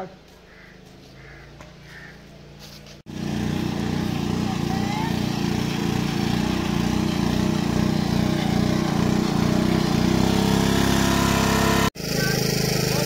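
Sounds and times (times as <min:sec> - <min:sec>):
water pump engine running: 0:03.1 - 0:13.0.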